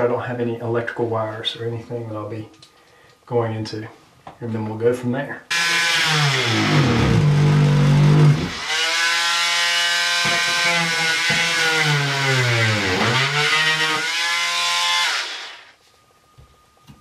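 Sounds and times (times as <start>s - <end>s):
oscillating multi-tool cutting drywall: 5.5s - 15.7s.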